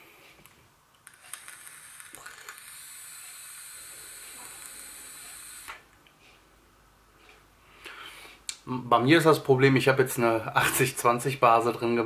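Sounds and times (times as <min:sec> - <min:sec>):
e-cigarette coil crackling: 0:01.0 - 0:05.9
hiss of air and vapour: 0:01.8 - 0:05.9.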